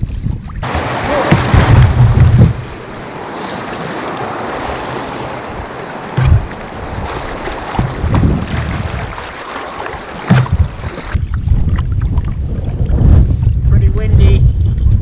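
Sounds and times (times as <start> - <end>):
wind buffeting microphone: 0.0 - 15.0
creek water rushing: 0.6 - 11.2.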